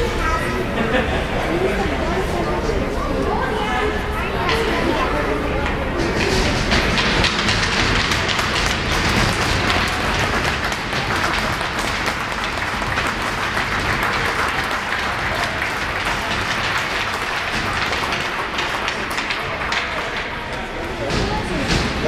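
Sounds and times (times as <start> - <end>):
spectators applauding: 6.6 - 20.7.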